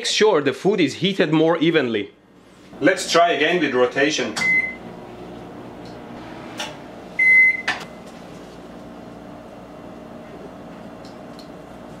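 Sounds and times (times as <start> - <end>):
microwave oven humming: 2.3 - 12.0
keypad beep: 7.2 - 7.8.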